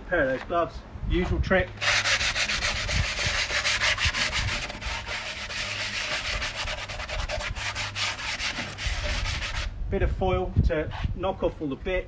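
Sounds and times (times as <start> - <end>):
foil ball scrubbing iron griddle: 1.8 - 9.7.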